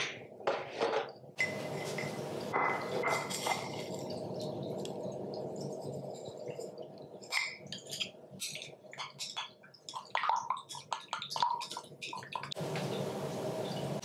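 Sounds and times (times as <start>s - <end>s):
egg sloshing: 1.4s - 13.1s
room noise hiss: 12.6s - 14.0s.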